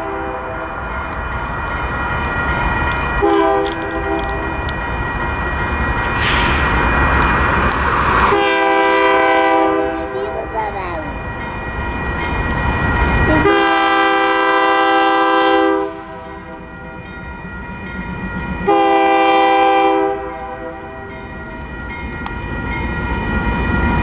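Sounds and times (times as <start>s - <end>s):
locomotive air horn blasts: 0.0s - 0.7s, 3.2s - 4.3s, 8.3s - 10.1s, 13.4s - 16.4s, 18.7s - 21.0s
rumble of passing locomotives: 0.0s - 24.0s.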